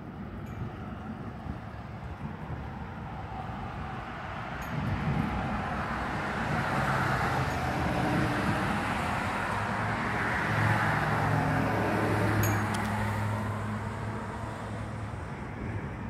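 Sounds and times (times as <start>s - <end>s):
low engine hum: 0.0s - 16.0s
car passing: 0.8s - 16.0s.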